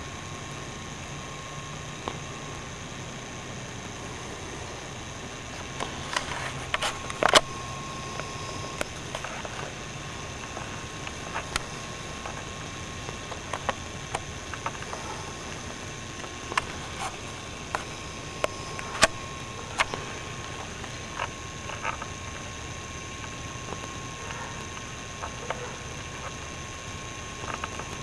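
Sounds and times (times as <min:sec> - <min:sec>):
camera running hiss and whine: 0:00.0 - 0:28.0.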